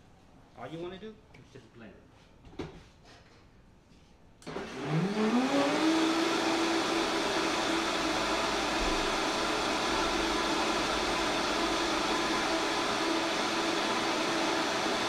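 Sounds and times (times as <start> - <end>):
blender motor whine: 4.4 - 15.0.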